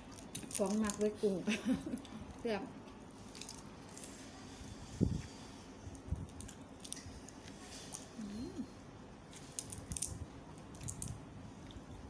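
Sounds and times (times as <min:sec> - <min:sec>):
shrimp shells crackling: 0:00.0 - 0:01.4, 0:09.4 - 0:11.2
person humming: 0:08.2 - 0:08.8.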